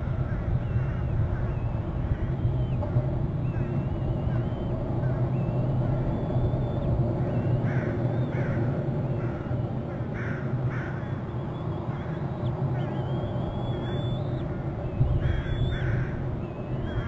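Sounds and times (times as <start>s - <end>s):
steady low rumble: 0.0s - 17.0s
thin high wavering whines: 0.8s - 17.0s
crow cawing: 7.2s - 11.2s, 11.9s - 13.1s, 15.2s - 16.2s.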